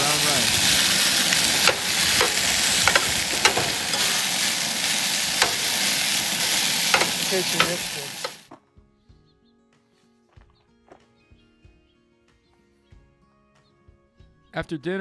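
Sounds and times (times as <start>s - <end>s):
stir fry sizzling in a skillet: 0.0s - 8.5s
metal spatula scraping a pan: 0.7s - 8.4s.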